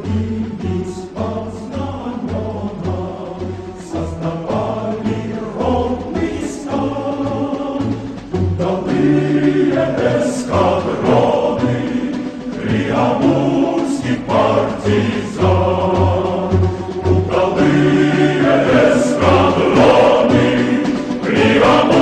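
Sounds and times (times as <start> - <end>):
choir singing: 0.0 - 22.0.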